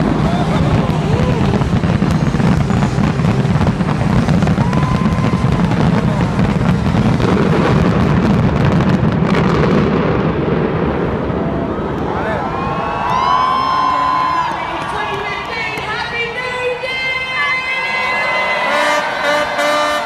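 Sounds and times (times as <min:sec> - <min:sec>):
fireworks bangs and crackling: 0:00.0 - 0:12.6
deep continuous rumble: 0:00.0 - 0:18.2.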